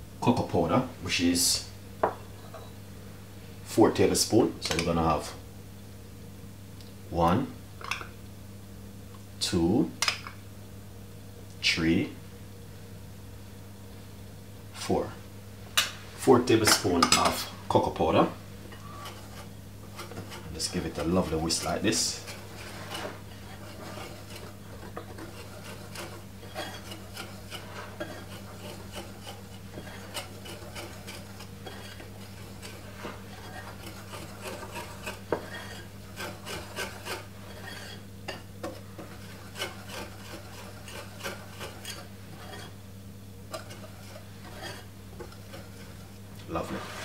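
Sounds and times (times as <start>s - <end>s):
whisk stirring flour in glass bowl: 16.4s - 42.8s, 43.5s - 47.0s.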